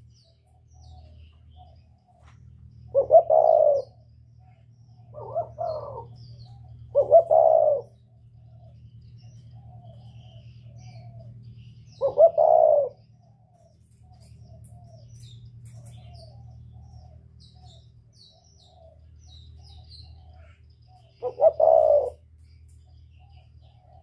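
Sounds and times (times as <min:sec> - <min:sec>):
dove cooing: 0:00.0 - 0:22.3
faint bird chirps: 0:00.0 - 0:24.0
steady low hum: 0:00.0 - 0:24.0.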